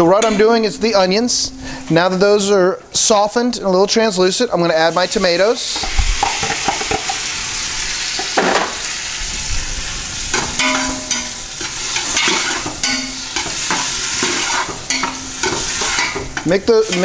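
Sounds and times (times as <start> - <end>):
vegetables sizzling in a pot: 4.6 - 17.0
metal spoon scraping a pot: 10.4 - 17.0.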